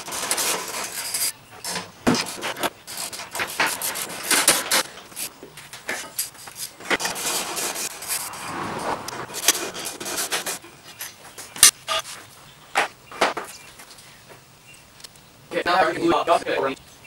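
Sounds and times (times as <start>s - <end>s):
plastic rubbing and scraping: 0.0s - 11.3s.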